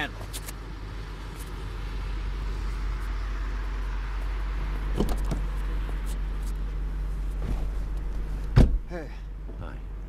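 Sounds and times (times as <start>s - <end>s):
street traffic: 0.0s - 10.0s
car engine idling: 0.6s - 10.0s
knocks of someone entering car: 8.5s - 8.9s.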